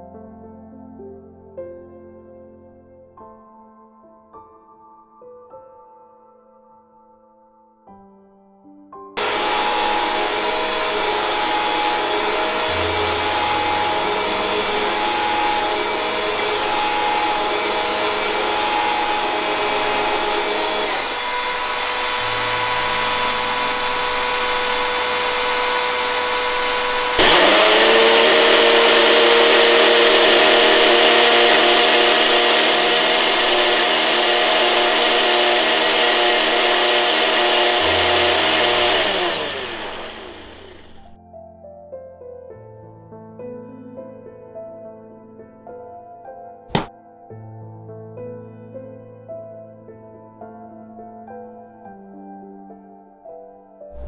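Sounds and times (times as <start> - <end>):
blender motor running: 9.2 - 41.2
vacuum cleaner running: 9.2 - 41.2, 46.7 - 46.9.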